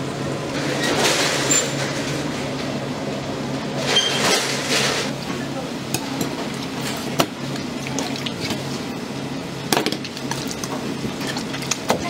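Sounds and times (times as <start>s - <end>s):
wet squelching and sloshing: 6.0s - 9.2s, 9.8s - 12.0s.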